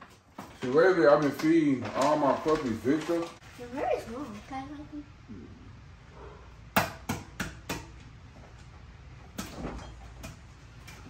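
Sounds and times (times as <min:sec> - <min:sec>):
sharp kitchen taps: 0:06.8 - 0:08.1.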